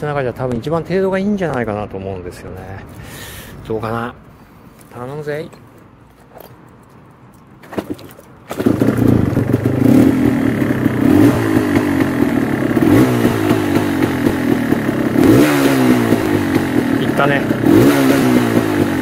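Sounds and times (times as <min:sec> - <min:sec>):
motorcycle engine starting and revving: 0:07.6 - 0:19.0.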